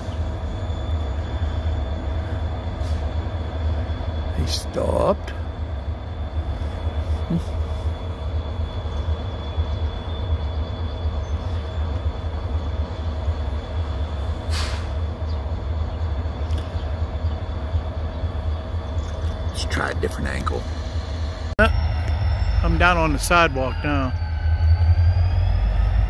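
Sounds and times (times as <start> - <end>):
diesel locomotives idling: 0.0 - 26.0
short air hiss: 14.5 - 15.0.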